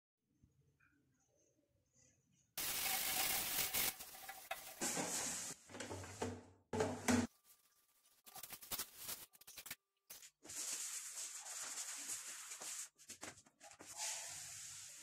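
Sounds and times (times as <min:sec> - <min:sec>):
rubbing and handling: 0:07.3 - 0:15.0.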